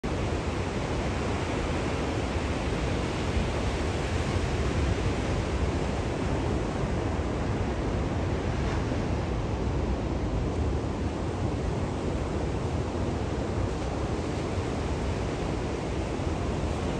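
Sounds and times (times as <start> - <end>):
ocean waves washing: 0.1 - 16.9.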